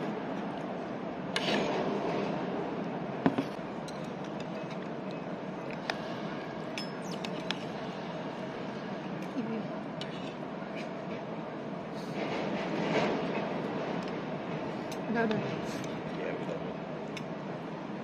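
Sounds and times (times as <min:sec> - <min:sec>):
steady background noise: 0:00.0 - 0:18.0.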